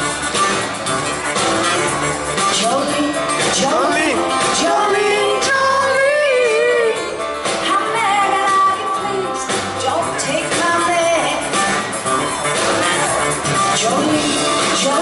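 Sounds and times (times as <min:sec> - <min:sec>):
acoustic bass guitar: 0:00.0 - 0:06.1, 0:09.2 - 0:15.0
acoustic guitar: 0:00.0 - 0:15.0
woman singing with vibrato: 0:02.5 - 0:11.5, 0:13.7 - 0:15.0.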